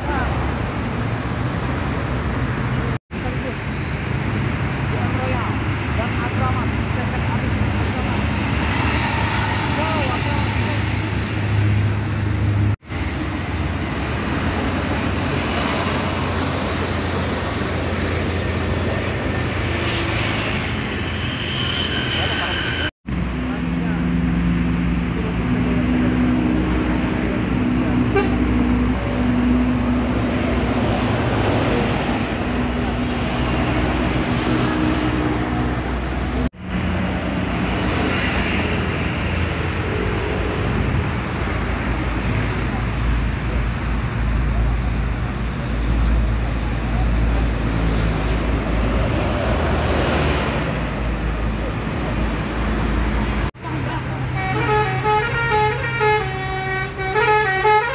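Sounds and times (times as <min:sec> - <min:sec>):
bus engine hum: 0:00.0 - 0:57.9
road traffic rumble: 0:00.0 - 0:57.9.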